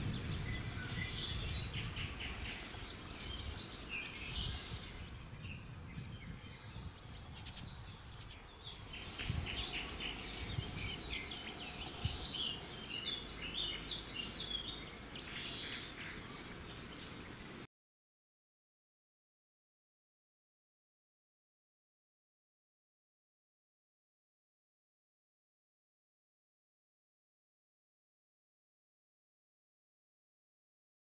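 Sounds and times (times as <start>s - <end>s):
small birds chirping: 0.0s - 17.7s.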